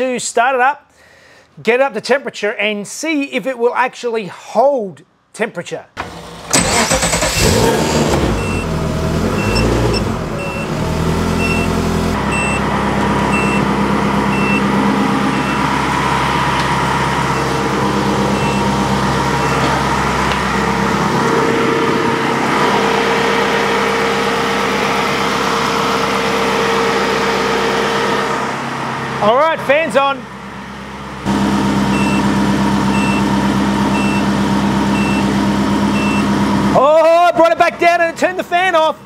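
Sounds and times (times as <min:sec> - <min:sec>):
car engine starting and idling: 0:06.0 - 0:29.5, 0:30.2 - 0:36.8
short high warning beep: 0:12.3 - 0:12.6, 0:18.4 - 0:18.6, 0:32.0 - 0:32.2, 0:32.9 - 0:33.2.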